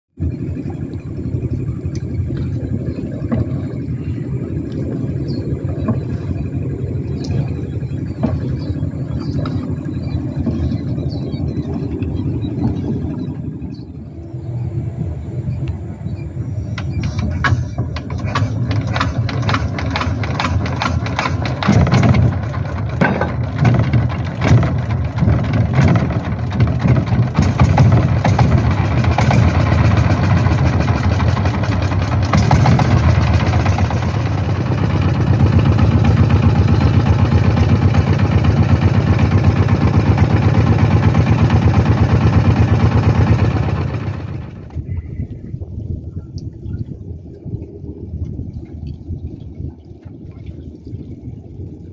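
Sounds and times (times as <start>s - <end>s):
boat engine chugging: 0.2s - 46.2s.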